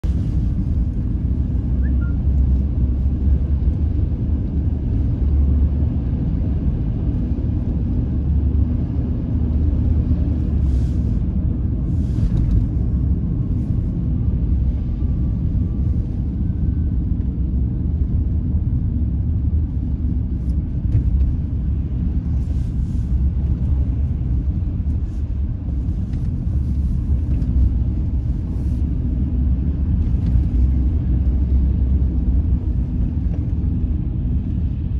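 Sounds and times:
car engine and tyre rumble: 0:00.0 - 0:34.9.

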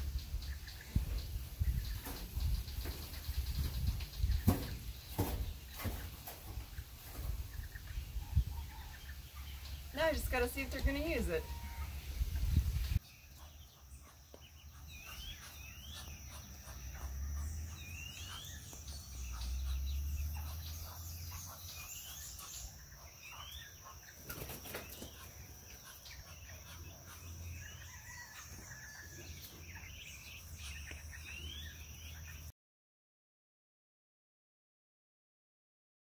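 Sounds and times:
ducklings peeping: 0:00.0 - 0:32.5.

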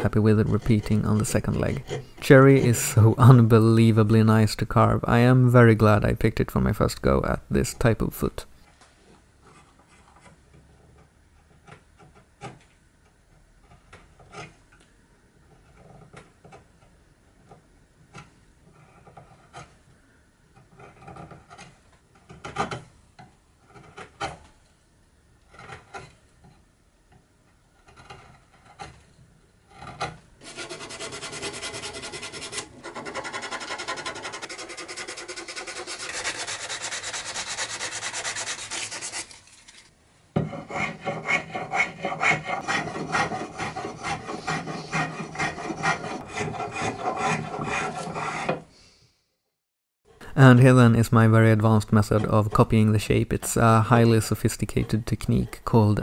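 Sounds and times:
carving gouge scraping wood: 0:00.0 - 0:02.9, 0:09.4 - 0:14.8, 0:15.4 - 0:19.9, 0:20.5 - 0:22.9, 0:23.6 - 0:24.4, 0:25.4 - 0:26.6, 0:27.7 - 0:39.8, 0:40.4 - 0:48.7
sandpaper rubbing on wood: 0:30.4 - 0:39.5, 0:40.7 - 0:48.5.

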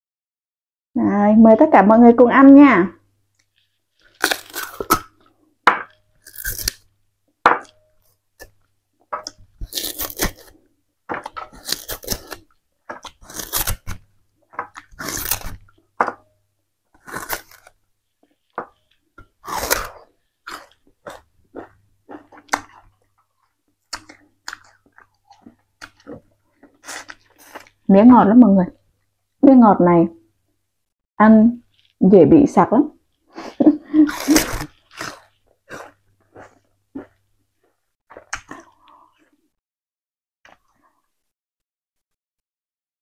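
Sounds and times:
person biting and chewing sugarcane: 0:03.4 - 0:06.9, 0:07.6 - 0:16.2, 0:16.9 - 0:27.9, 0:34.0 - 0:39.4.

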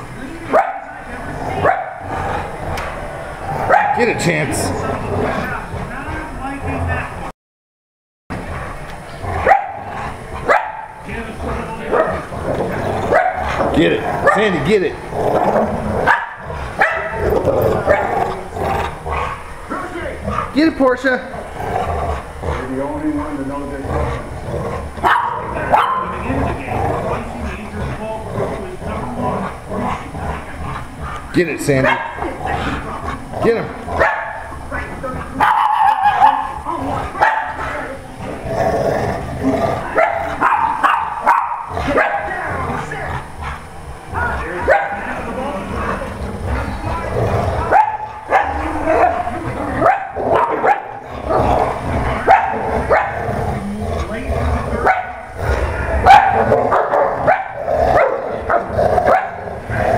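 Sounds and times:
dogs growling: 0:00.0 - 0:07.3, 0:08.3 - 0:59.9
dog barks: 0:00.5 - 0:01.0, 0:01.6 - 0:02.1, 0:03.6 - 0:04.2, 0:09.4 - 0:11.0, 0:13.1 - 0:13.6, 0:16.0 - 0:18.2, 0:25.0 - 0:26.2, 0:31.8 - 0:32.2, 0:34.0 - 0:34.5, 0:35.4 - 0:36.6, 0:37.2 - 0:37.6, 0:40.0 - 0:42.4, 0:44.6 - 0:45.0, 0:47.6 - 0:51.0, 0:52.2 - 0:53.3, 0:54.8 - 0:55.4, 0:56.0 - 0:59.4.

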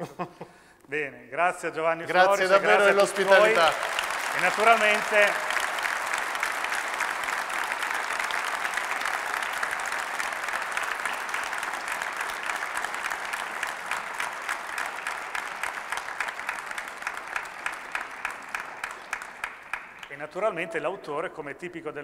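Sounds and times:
audience applauding: 0:02.1 - 0:20.4.

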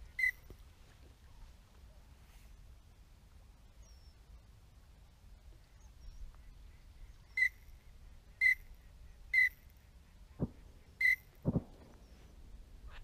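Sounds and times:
duck whistled calls: 0:00.1 - 0:00.4, 0:07.3 - 0:07.6, 0:08.4 - 0:08.7, 0:09.3 - 0:09.6, 0:10.4 - 0:11.4.

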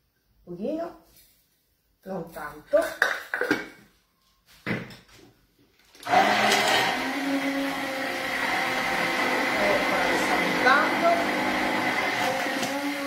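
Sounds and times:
immersion blender running: 0:06.0 - 0:13.0.

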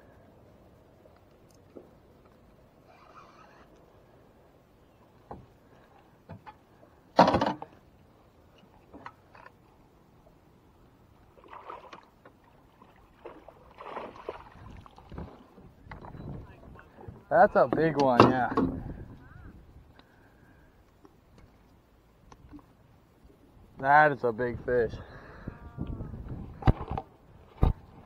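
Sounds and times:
water splashing: 0:11.3 - 0:17.1.

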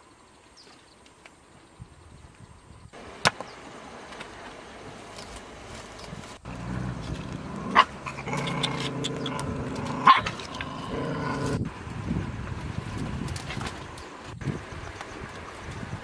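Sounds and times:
dog growling low: 0:06.5 - 0:11.7.

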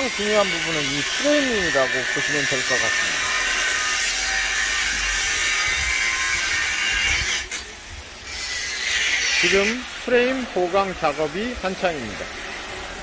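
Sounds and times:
power tool whining on metal: 0:00.0 - 0:10.4.

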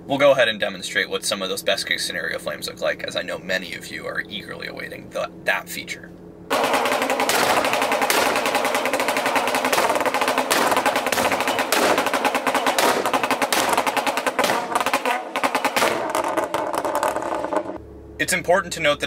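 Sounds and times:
engine held at rev limit: 0:00.0 - 0:19.0
exhaust pops and bangs: 0:06.5 - 0:17.8.

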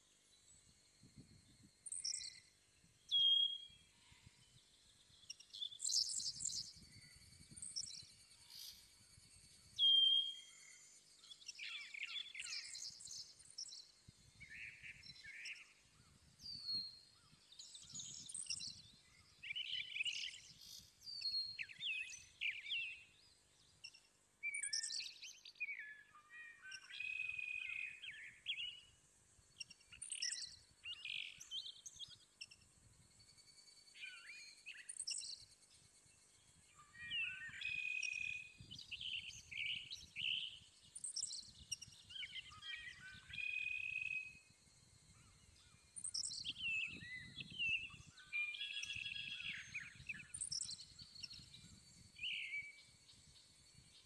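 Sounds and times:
small birds chirping: 0:00.1 - 0:54.0.

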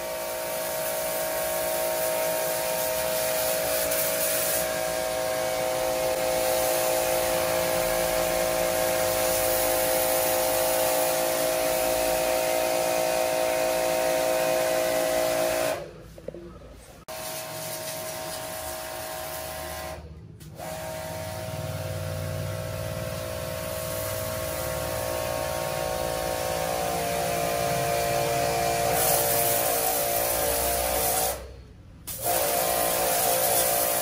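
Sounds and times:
pressure washer motor humming: 0:00.0 - 0:15.8, 0:20.6 - 0:31.3.

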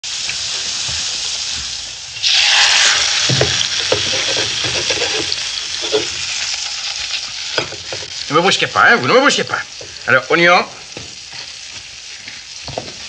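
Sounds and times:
butter sizzling in a pan: 0:00.0 - 0:13.0.

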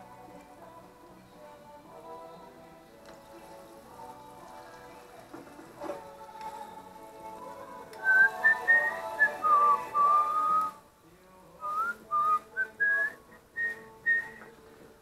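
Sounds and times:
person whistling a tune: 0:08.0 - 0:10.8, 0:11.6 - 0:14.5.

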